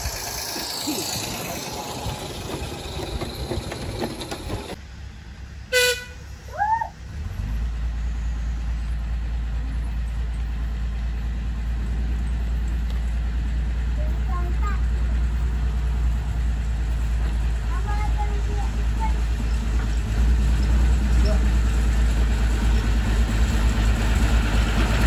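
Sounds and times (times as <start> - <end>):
model train clatter: 0.0 - 4.8
low diesel engine rumble: 0.0 - 25.0
locomotive horn toot: 5.7 - 6.3.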